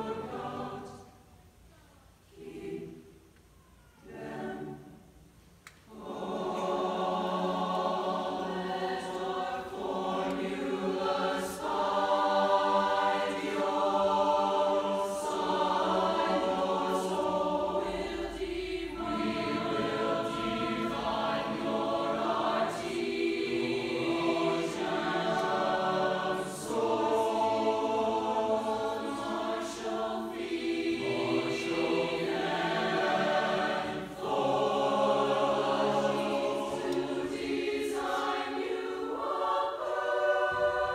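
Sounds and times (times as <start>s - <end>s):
choir singing in harmony: 0.0s - 1.3s, 2.2s - 3.4s, 4.0s - 40.9s.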